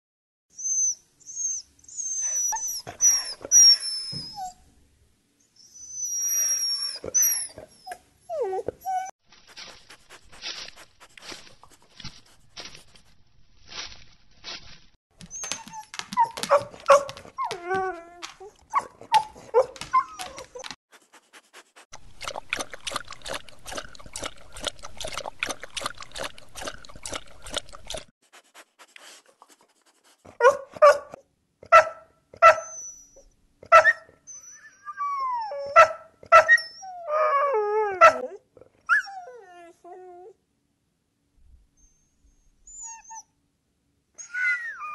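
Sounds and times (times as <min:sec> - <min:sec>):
dog whining and yelping: 0:00.6 - 0:04.7, 0:05.6 - 0:09.1, 0:15.2 - 0:20.8, 0:30.4 - 0:40.4, 0:41.8 - 0:43.3, 0:44.2 - 0:44.9
dog barking: 0:16.5 - 0:17.2, 0:30.4 - 0:32.7, 0:35.8 - 0:36.6.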